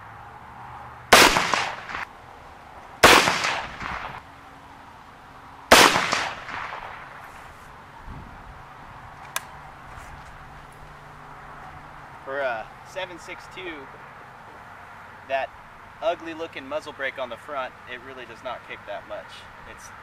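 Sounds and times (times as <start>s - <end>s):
rifle shots with echo: 1.1s - 2.1s, 3.0s - 4.2s, 5.7s - 7.1s.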